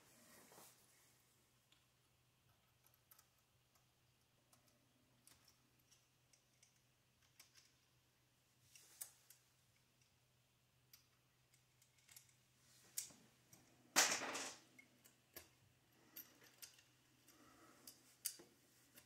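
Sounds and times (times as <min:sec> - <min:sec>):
small metal parts clicking: 0:02.4 - 0:08.0, 0:10.9 - 0:19.0
parts clattering: 0:11.5 - 0:19.0.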